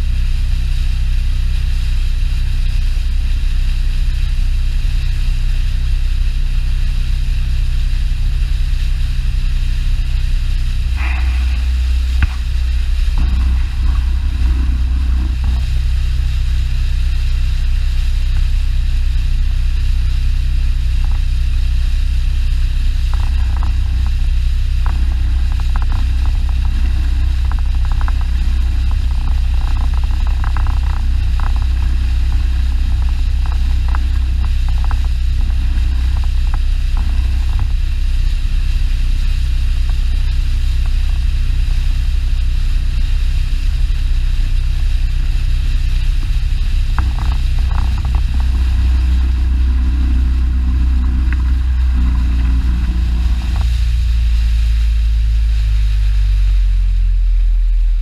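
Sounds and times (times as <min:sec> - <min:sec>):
outboard motor droning: 0:00.0 - 0:58.0
light ticking and rattling: 0:08.2 - 0:54.4.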